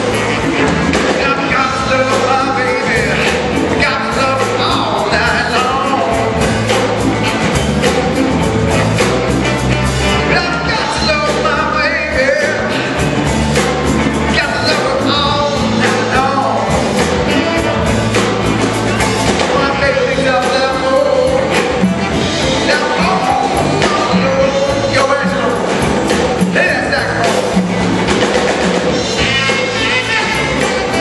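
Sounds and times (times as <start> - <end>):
saxophone: 0.0 - 26.0, 26.6 - 31.0
drums: 0.0 - 31.0
electric guitar: 0.0 - 31.0
man singing: 1.0 - 7.0, 10.2 - 13.0, 14.3 - 17.6, 19.4 - 27.6.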